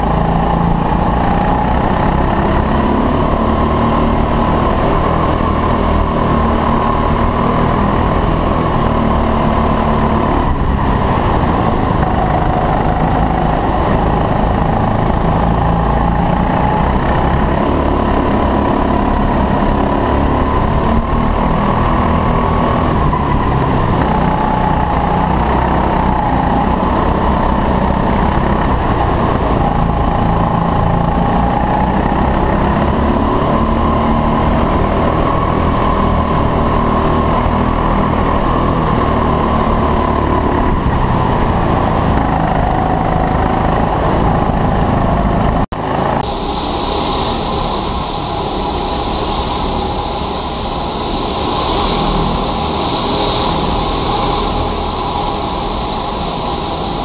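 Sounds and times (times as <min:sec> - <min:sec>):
kart engine revving: 0:00.0 - 0:28.2
karts passing with hiss and whine: 0:00.0 - 0:44.2, 0:45.0 - 0:57.0.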